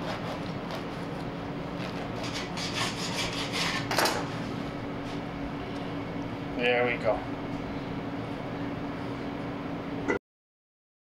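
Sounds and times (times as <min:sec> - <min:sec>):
knife sawing through crusty bread: 0:00.0 - 0:01.2, 0:01.8 - 0:04.0.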